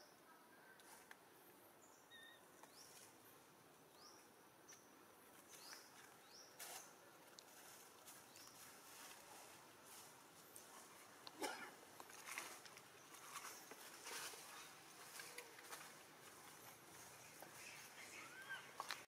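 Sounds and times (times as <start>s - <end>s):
soft outdoor hiss: 0.0s - 19.0s.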